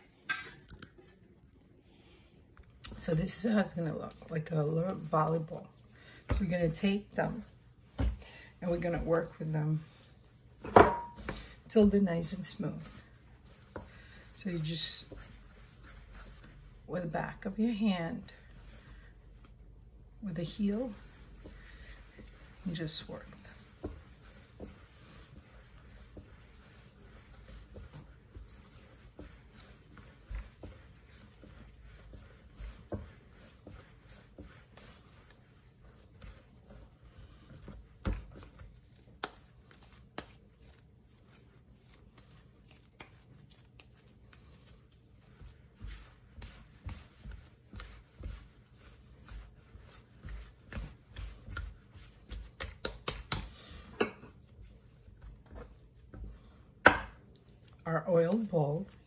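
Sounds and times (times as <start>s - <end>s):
hands patting dough on stone: 10.5s - 17.5s, 20.4s - 59.0s.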